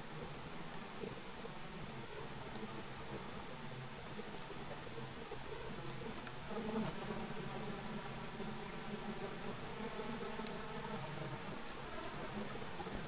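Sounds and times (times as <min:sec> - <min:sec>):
faint clicks: 0:00.4 - 0:07.0.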